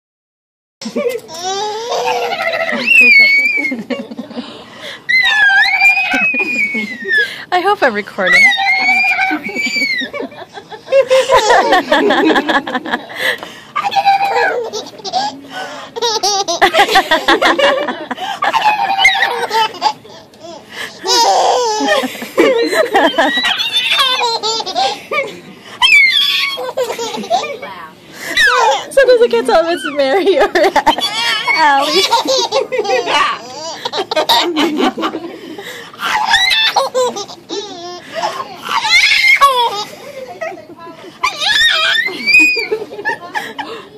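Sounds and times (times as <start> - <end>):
baby laughing: 0.8 - 4.1, 8.4 - 10.3, 11.0 - 12.6, 13.8 - 27.6, 28.3 - 28.9, 29.7 - 40.6, 41.2 - 43.7
adults laughing: 2.0 - 4.9, 6.0 - 7.4, 8.8 - 20.1, 20.7 - 25.7, 26.4 - 43.9.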